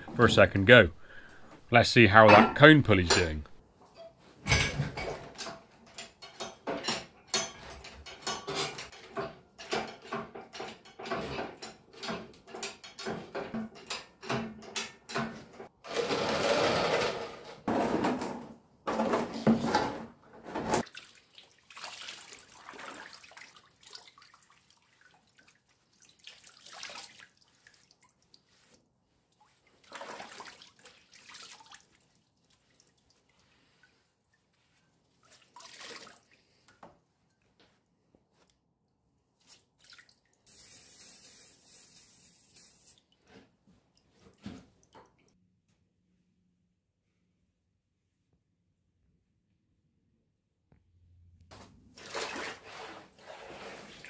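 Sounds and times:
knocks and clatter of handling: 2.2 - 15.8, 16.7 - 20.9
liquid splashing and dripping: 20.8 - 34.5, 35.1 - 37.4, 39.4 - 45.4.

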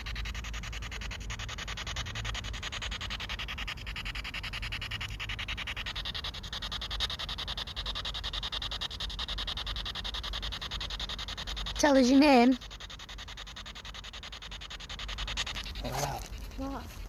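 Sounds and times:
thin steady tone: 0.0 - 17.0
pulsing radio static: 14.8 - 17.0.

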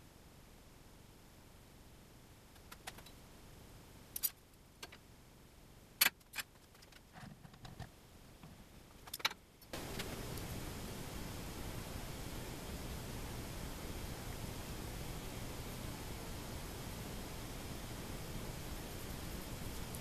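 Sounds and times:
steady hiss: 8.0 - 20.0.

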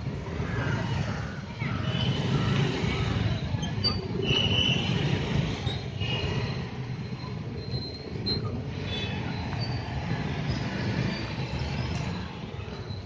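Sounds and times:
scooters and motorcycles engine rumble: 0.0 - 13.0.

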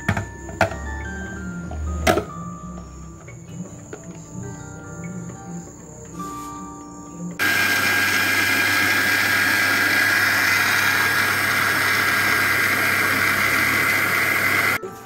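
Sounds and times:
mixer grinder motor whining: 7.4 - 14.8.

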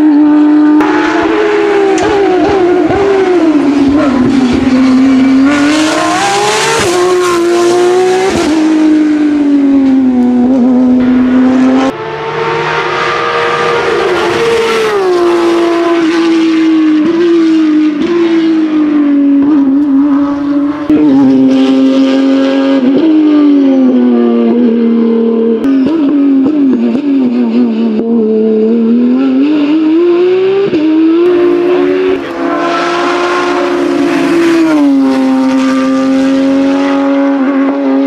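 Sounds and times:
racing car engine at full throttle: 0.0 - 38.0.

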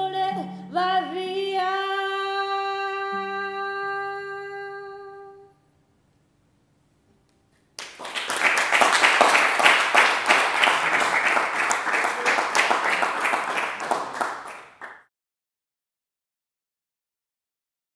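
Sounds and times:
applause hand claps: 7.8 - 15.1.

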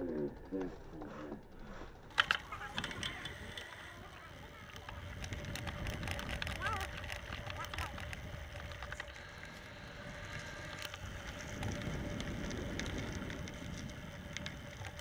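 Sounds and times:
bike rattling: 0.0 - 15.0
bike tyres crunching on gravel: 2.1 - 15.0.

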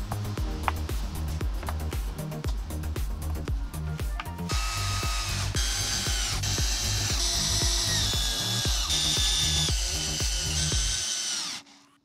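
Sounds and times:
background music with beat: 0.0 - 11.0
cordless drill driving screws: 4.5 - 11.8.

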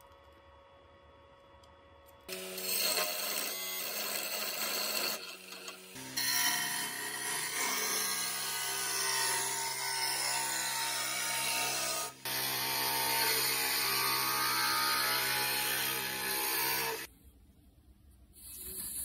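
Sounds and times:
wood lathe humming: 2.3 - 17.1.

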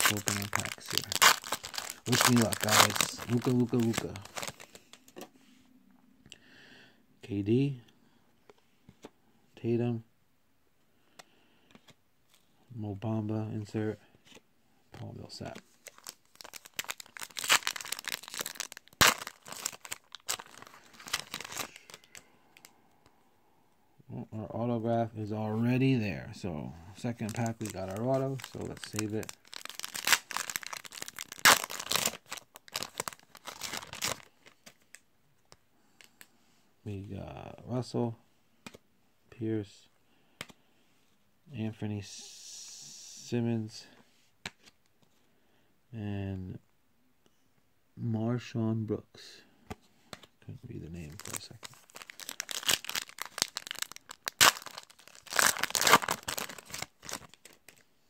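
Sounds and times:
plastic wrapper crinkling: 0.0 - 5.0, 15.4 - 22.7, 27.0 - 35.0, 51.0 - 57.9
faint clicks of cards: 38.6 - 38.8, 40.3 - 40.6.

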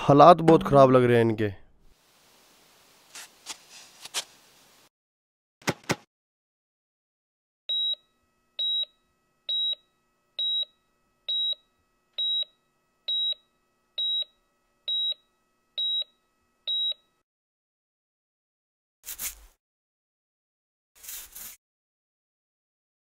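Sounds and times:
medical monitor beeping: 7.7 - 17.2.

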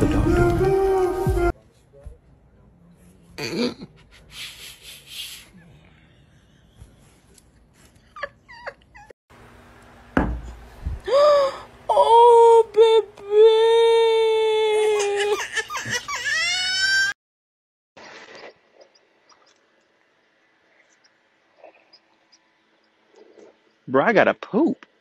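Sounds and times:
low thump: 10.2 - 10.6
high-pitched whimpering cry: 11.1 - 17.2.

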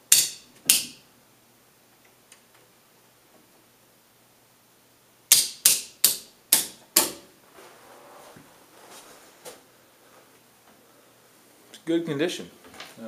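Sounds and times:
faint shuffling: 7.4 - 13.0.

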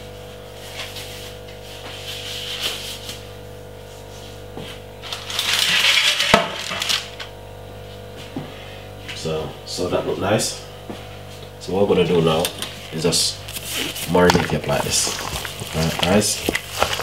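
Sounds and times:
steady low hum: 0.0 - 17.0
rustling and scraping: 12.7 - 17.0.

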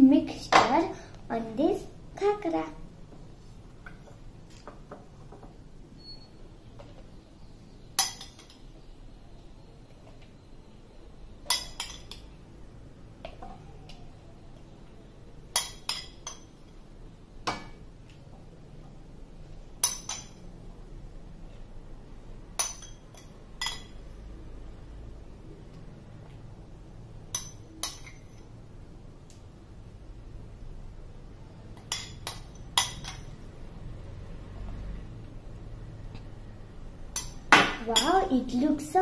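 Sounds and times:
spoon clinking against bowl: 27.3 - 28.4.

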